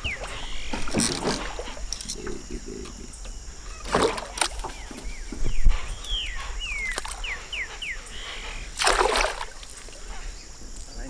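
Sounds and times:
fish splashing water: 3.8 - 4.7, 8.7 - 10.1
bird whistling calls: 4.7 - 8.7.

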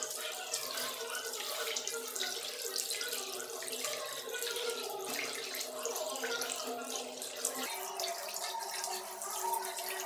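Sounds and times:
tap water running into sink: 0.0 - 10.0.

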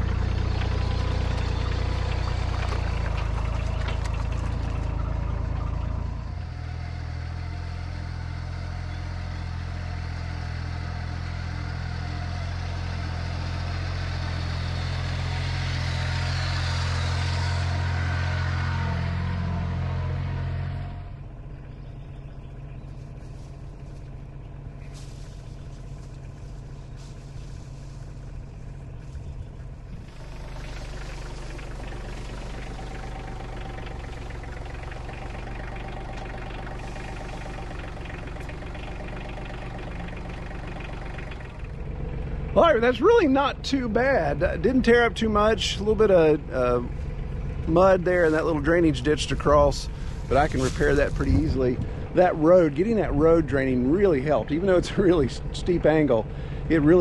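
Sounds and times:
tractor engine running: 0.0 - 57.0.

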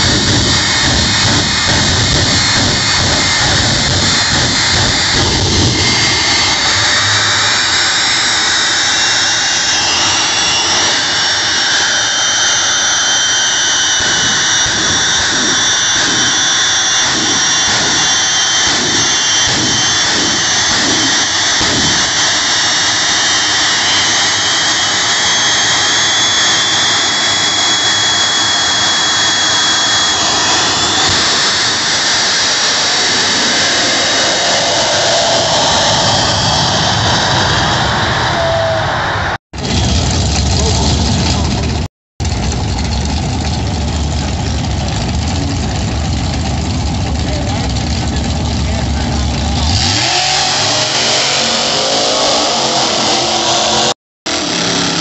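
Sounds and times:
rhythmic low pulsing: 0.0 - 9.6
jet engine roar with turbine whine: 0.0 - 55.0.

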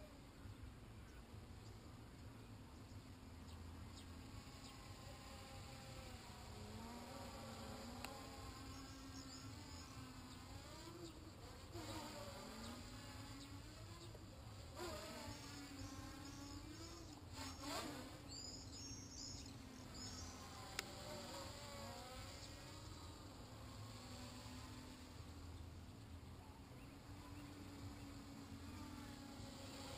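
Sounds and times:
quadcopter propellers buzzing: 2.8 - 29.9.

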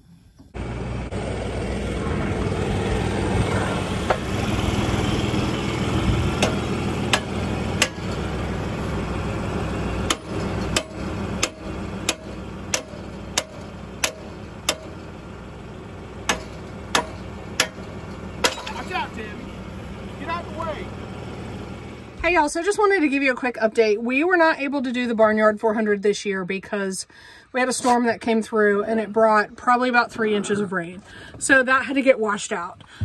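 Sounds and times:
tractor engine idling: 0.4 - 23.2
sharp knocks: 6.3 - 8.2, 10.1 - 15.0, 16.3 - 18.9.

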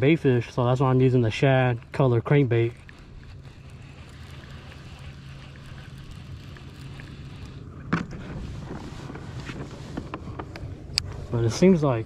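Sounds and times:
low hum with hiss: 0.0 - 12.0
fishing reel cranking: 1.4 - 9.3.

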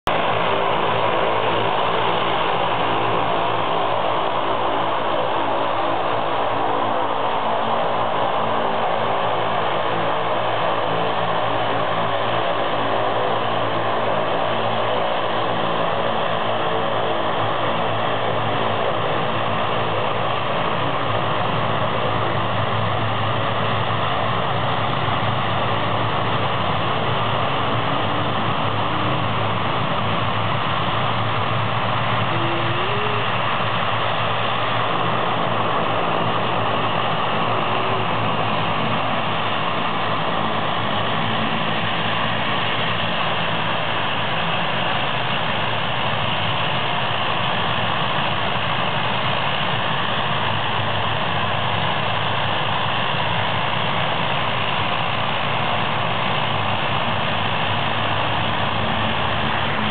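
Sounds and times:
turboprop airliner engines droning: 0.0 - 59.9.

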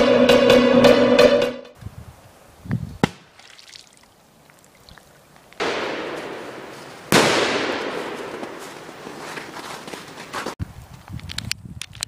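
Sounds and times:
firecracker bangs with echo: 5.6 - 8.9.

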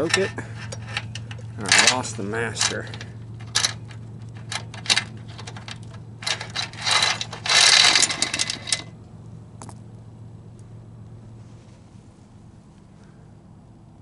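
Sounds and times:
drive chain clinking and rattling: 0.0 - 9.0.

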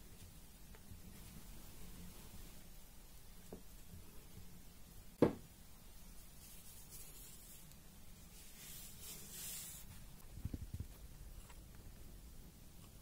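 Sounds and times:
rubbing flour over dough: 5.9 - 10.7.

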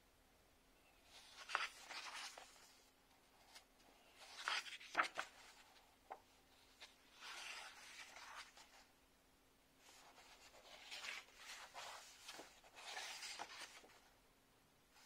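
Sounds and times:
paper pages turning: 1.1 - 2.8, 3.4 - 8.9, 9.8 - 14.1.

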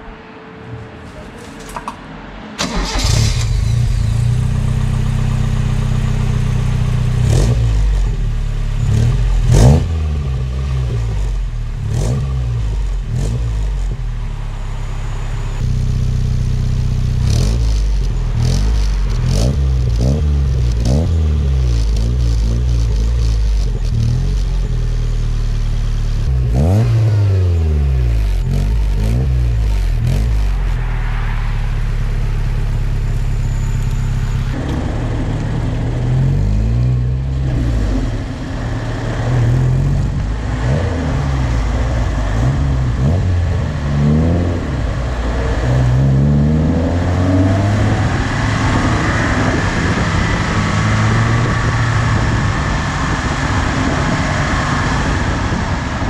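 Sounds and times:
car engine starting: 0.0 - 56.0
engine idling with throttle blips: 2.6 - 20.9.

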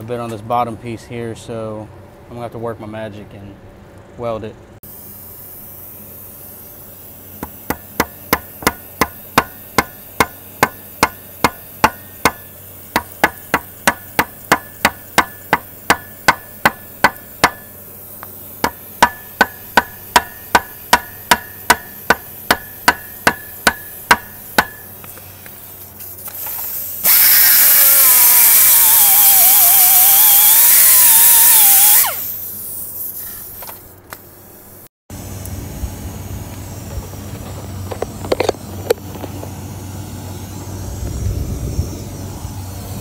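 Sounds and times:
sharp metallic knocks: 7.4 - 17.8, 18.6 - 24.9
die grinder grinding aluminium: 27.0 - 32.4.

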